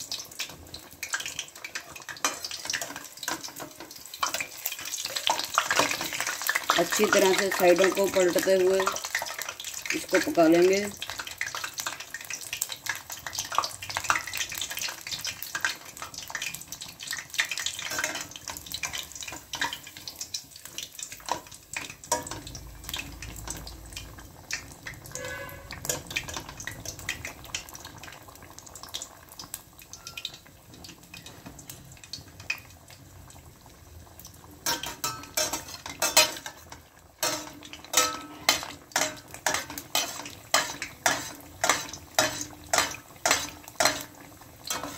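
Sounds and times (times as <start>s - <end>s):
food sizzling in hot oil: 0.0s - 44.9s
metal spoon clinking on pot: 34.6s - 44.9s.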